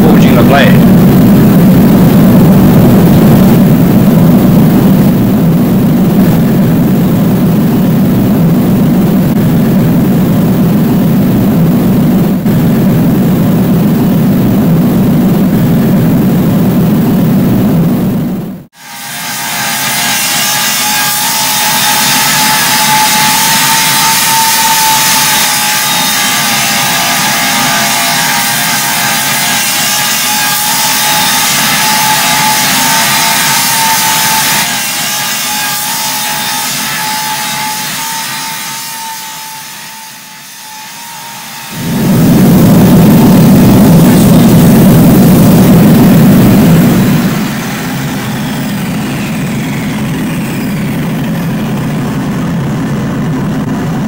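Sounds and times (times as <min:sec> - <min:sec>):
deep rushing noise: 0:00.0 - 0:18.7, 0:41.8 - 0:54.0
angle grinder grinding steel: 0:18.8 - 0:41.8.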